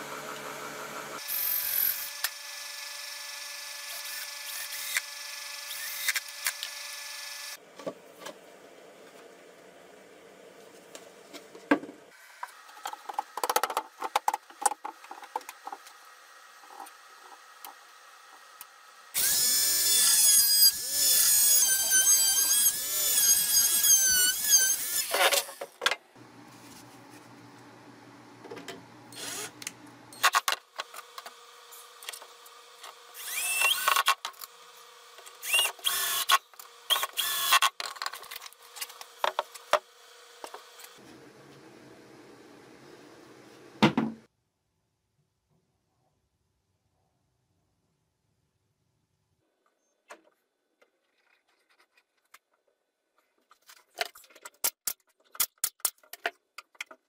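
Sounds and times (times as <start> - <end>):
cordless drill running: 1.1 - 7.6, 19.1 - 25.1, 29.1 - 29.6, 33.1 - 34.6, 35.4 - 37.7.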